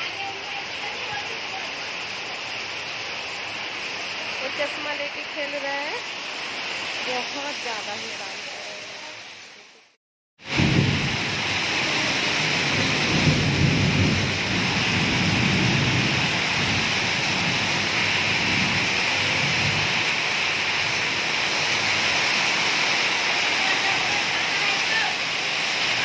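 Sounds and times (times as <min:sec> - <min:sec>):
rain on metal roofs: 0:00.0 - 0:26.0.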